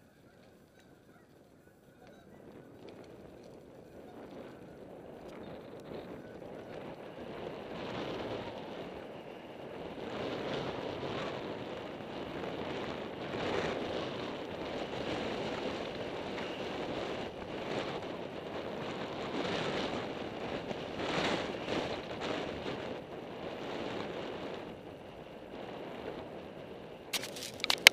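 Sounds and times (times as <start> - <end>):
wind on microphone: 2.0 - 27.9.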